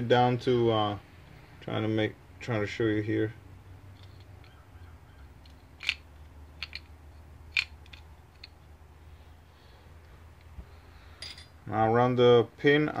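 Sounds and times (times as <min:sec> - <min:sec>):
steady low hum: 0:00.0 - 0:13.0
small metal parts clicking: 0:03.9 - 0:04.6, 0:05.4 - 0:08.7.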